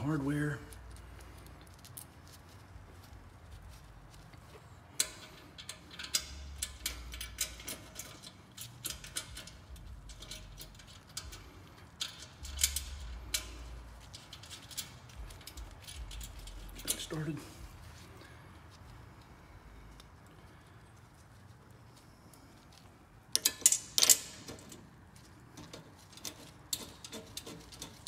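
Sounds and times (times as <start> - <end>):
small metal clicks and clinks: 0.4 - 17.4, 18.2 - 28.0.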